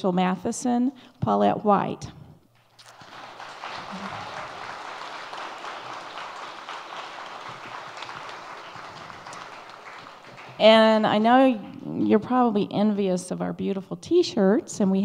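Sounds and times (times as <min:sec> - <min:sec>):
audience applauding: 0:02.8 - 0:11.5.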